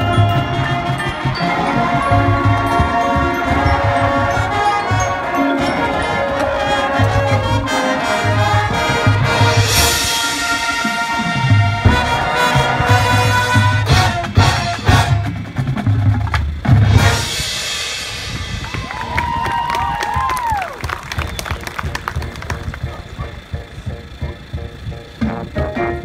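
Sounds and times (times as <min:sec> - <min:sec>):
marimbas: 0:00.0 - 0:08.0
brass chords: 0:00.0 - 0:15.8, 0:16.7 - 0:18.3, 0:22.1 - 0:26.0
drums: 0:00.0 - 0:26.0.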